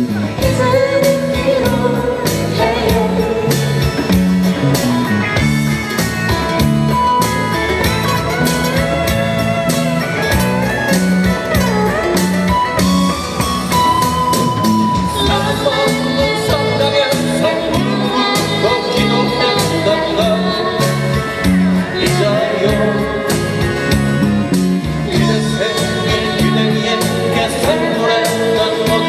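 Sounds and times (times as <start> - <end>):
electric guitar sliding lead notes: 0.0 - 29.0
low bass notes: 0.0 - 29.0
strummed acoustic guitars: 0.0 - 29.0
djembe beats: 3.5 - 16.2.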